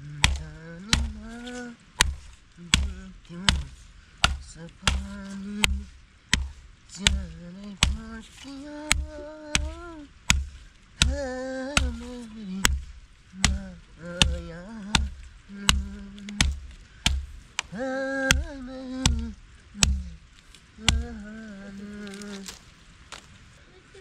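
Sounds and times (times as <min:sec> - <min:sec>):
person humming a slow melody: 0:00.0 - 0:22.6
blade chopping: 0:00.0 - 0:23.3.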